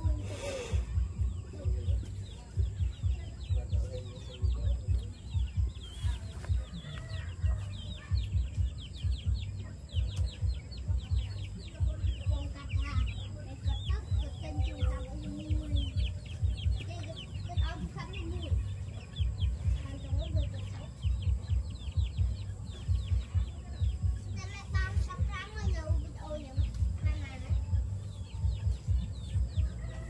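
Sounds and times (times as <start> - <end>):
birds chirping: 0.0 - 30.0
chicken clucking: 1.3 - 30.0.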